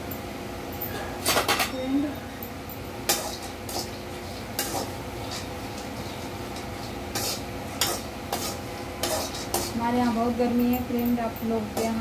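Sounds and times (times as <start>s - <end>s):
metal spatula scraping pan: 3.1s - 6.2s, 6.8s - 10.2s.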